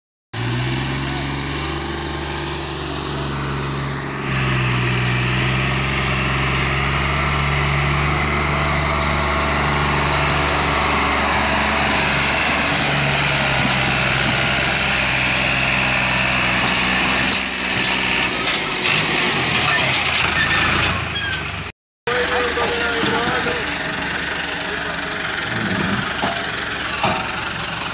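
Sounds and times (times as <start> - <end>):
tractor diesel engine under load: 0.3 - 27.9
engine knocks: 8.0 - 27.9.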